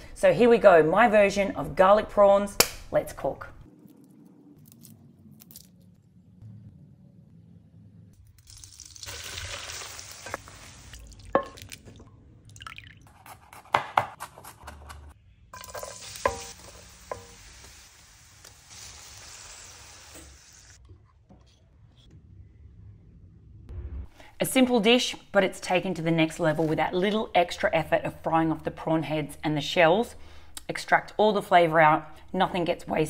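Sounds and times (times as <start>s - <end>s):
prawns sizzling in oil: 8.4s - 11.4s, 15.6s - 20.8s.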